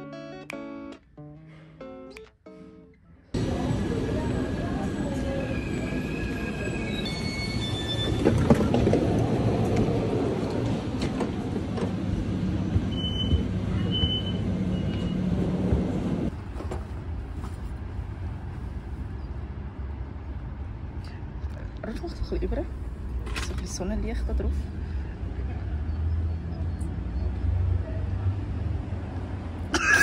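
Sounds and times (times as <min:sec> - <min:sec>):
outdoor ambience: 0:00.6 - 0:30.0
train rumbling with whining tones: 0:03.4 - 0:20.7.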